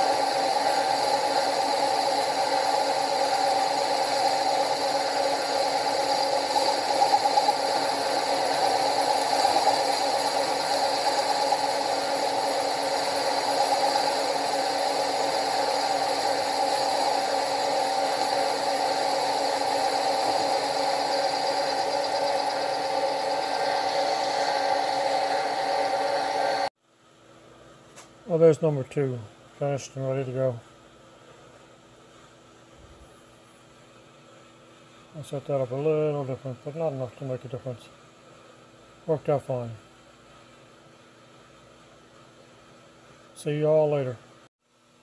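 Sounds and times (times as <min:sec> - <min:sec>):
milling machine hum: 0:00.0 - 0:26.7.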